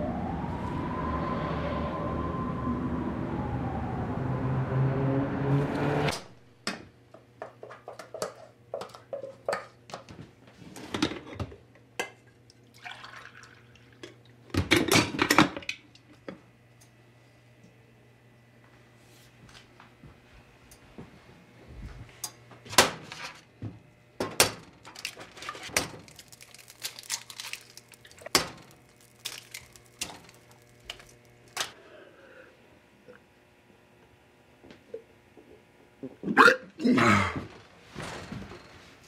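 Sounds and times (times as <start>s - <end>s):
street traffic: 0.0s - 6.1s
wailing siren: 0.0s - 6.1s
liquid pouring: 12.6s - 14.1s.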